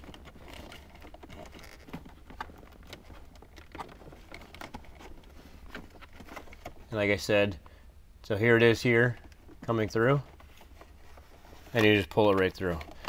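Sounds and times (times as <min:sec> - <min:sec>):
cable rubbing through plastic trim: 0:00.0 - 0:06.9.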